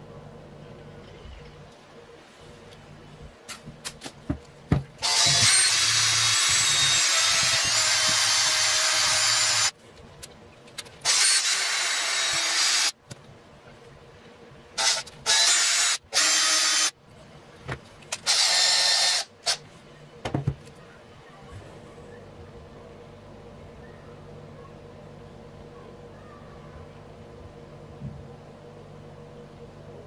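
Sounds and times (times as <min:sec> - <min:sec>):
power drill running: 0:05.0 - 0:09.7, 0:11.0 - 0:13.0, 0:14.8 - 0:16.9, 0:18.2 - 0:19.6.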